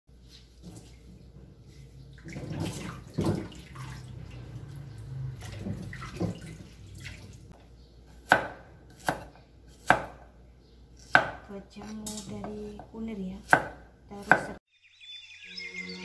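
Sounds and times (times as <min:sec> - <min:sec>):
water splashing in steel sink: 0:02.1 - 0:07.5
cleaver chopping on wooden board: 0:08.2 - 0:10.3, 0:11.0 - 0:14.6.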